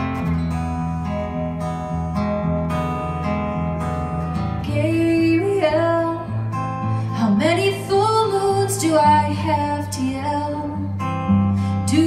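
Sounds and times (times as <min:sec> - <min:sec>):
acoustic guitar strummed and picked: 0:00.0 - 0:12.0
woman singing: 0:04.6 - 0:11.1, 0:11.7 - 0:12.0.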